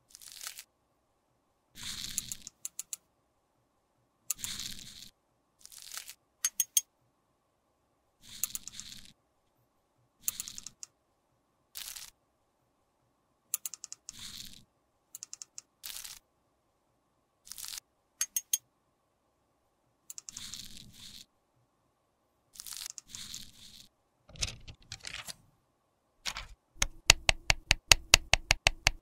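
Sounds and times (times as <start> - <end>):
spatula scraping powder: 1.8 - 2.5, 4.4 - 6.2, 8.2 - 9.2, 20.2 - 21.3, 22.6 - 23.9.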